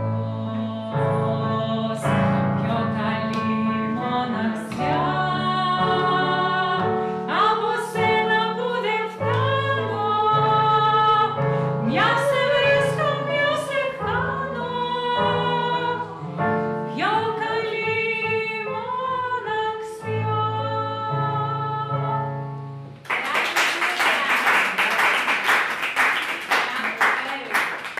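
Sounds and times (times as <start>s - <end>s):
woman singing: 0.0s - 22.4s
digital piano: 0.0s - 23.1s
audience clapping: 23.0s - 27.9s.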